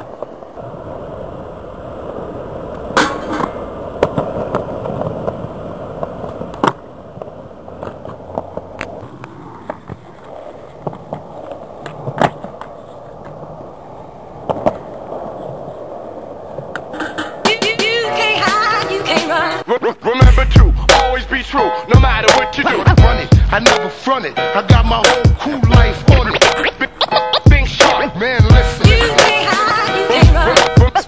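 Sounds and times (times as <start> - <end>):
skateboard wheels rolling on concrete: 0.0 - 31.0
skateboard clacking on ground: 2.7 - 19.1.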